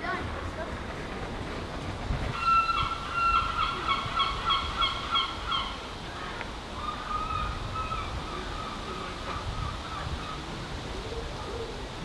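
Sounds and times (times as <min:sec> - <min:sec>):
bird harsh calls: 0:02.3 - 0:10.5
drawn-out bird calls: 0:02.3 - 0:12.0.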